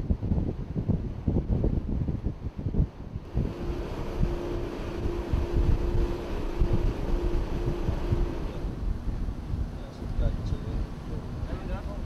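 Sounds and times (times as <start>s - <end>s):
boat engine rumble: 0.0s - 12.0s
wind buffeting microphone: 0.0s - 12.0s
faint pulsing tone: 3.2s - 9.6s.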